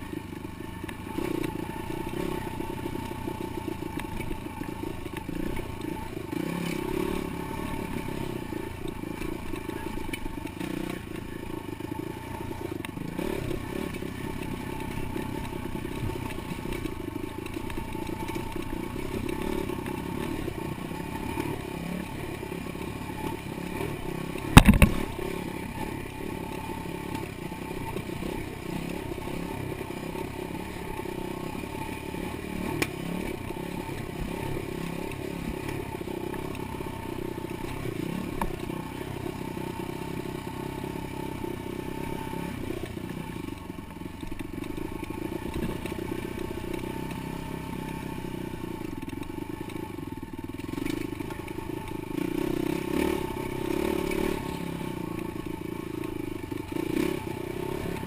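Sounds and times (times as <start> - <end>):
dirt bike engine running: 0.0 - 58.0.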